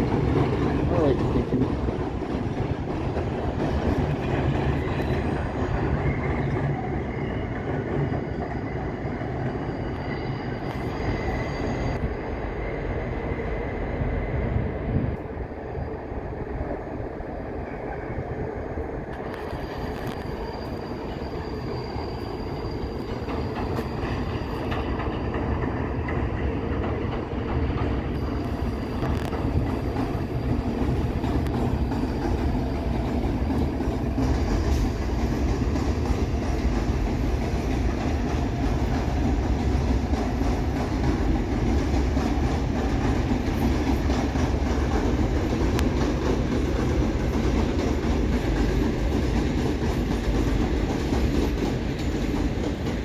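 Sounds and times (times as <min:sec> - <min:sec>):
train rumble: 0:00.0 - 0:53.0
wheels clicking over rail joints: 0:22.5 - 0:53.0.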